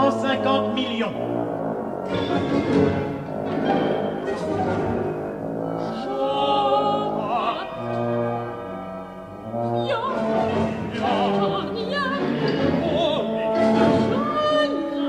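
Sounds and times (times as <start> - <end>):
orchestra sustained chords: 0.0 - 15.0
soprano singing with vibrato: 5.9 - 8.0, 9.8 - 15.0.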